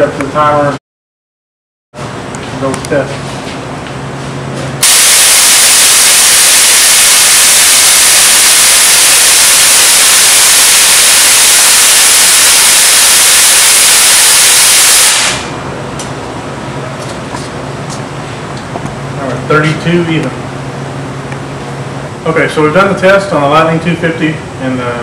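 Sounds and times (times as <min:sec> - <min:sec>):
loud steady gas hiss: 0:04.8 - 0:15.6.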